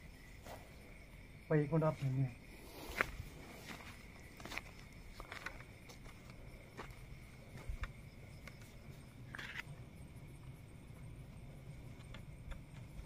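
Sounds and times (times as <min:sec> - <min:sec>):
faint footsteps on dirt: 0:01.9 - 0:09.1.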